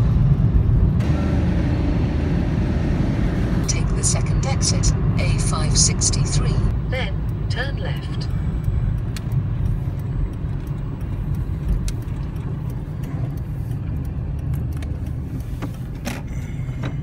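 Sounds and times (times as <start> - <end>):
engine and tyre rumble: 0.0 - 17.0
light irregular ticks: 7.2 - 17.0.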